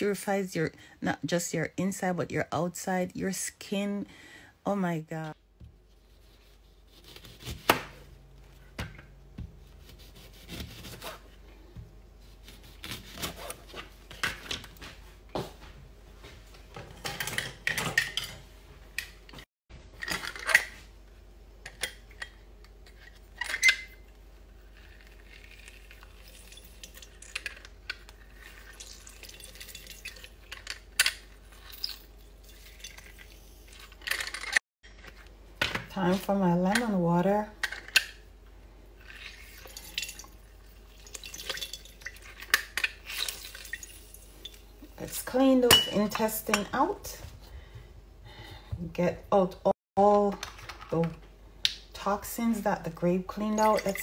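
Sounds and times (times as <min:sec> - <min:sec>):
glassware and utensils on counter: 0:16.9 - 0:18.5, 0:45.6 - 0:46.8, 0:53.3 - 0:54.0.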